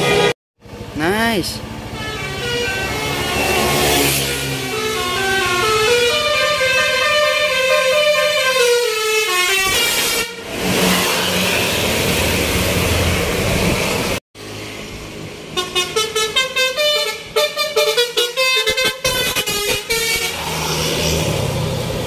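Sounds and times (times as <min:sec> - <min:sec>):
multi-tone musical bus horn: 0:00.0 - 0:00.4, 0:01.8 - 0:11.0, 0:15.5 - 0:20.4
bus engine and road noise: 0:00.0 - 0:22.0.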